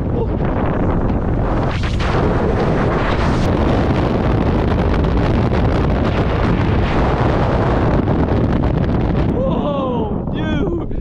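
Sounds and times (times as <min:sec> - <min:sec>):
freefall wind on microphone: 0:00.0 - 0:11.0.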